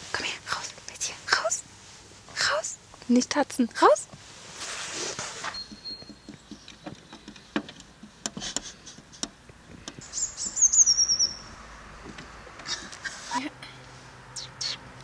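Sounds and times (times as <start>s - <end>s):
bird trilling: 10.0s - 11.5s.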